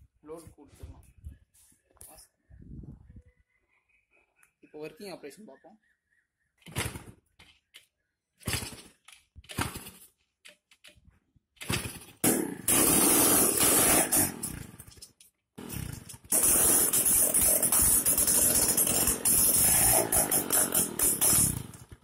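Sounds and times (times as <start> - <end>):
small engine cranking and running: 11.6 - 22.0.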